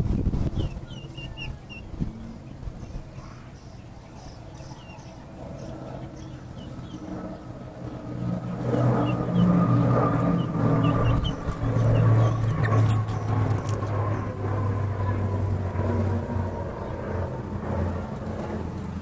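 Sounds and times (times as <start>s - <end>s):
vehicle engine running: 5.9s - 19.0s.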